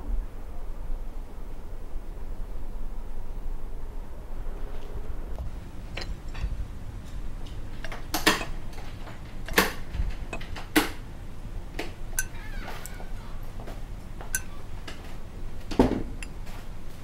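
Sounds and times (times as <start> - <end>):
ceramic dishes clinking on table: 7.8 - 10.6, 12.2 - 12.9, 14.2 - 14.6.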